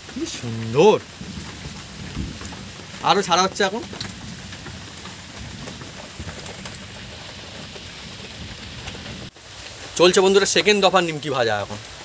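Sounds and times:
dough frying in hot oil: 0.0 - 12.0.

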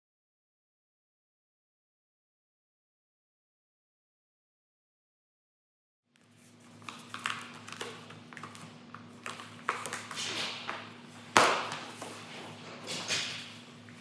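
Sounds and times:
steady low hum: 6.2 - 14.0.

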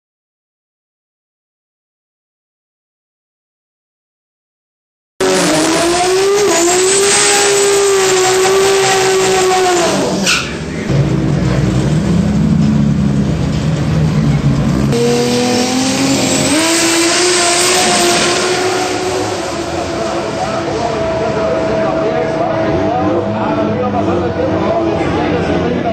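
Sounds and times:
drag car engine revving: 5.2 - 25.9.

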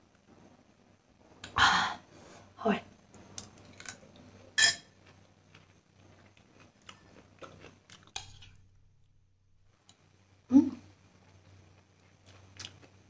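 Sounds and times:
chewing and crunching: 5.0 - 8.6, 11.2 - 13.0.

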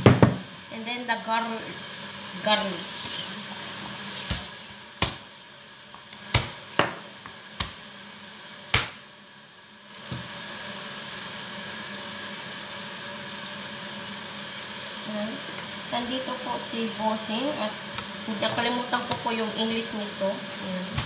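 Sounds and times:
steady background hum: 0.0 - 21.0
knife smacking garlic on board: 8.7 - 9.0.

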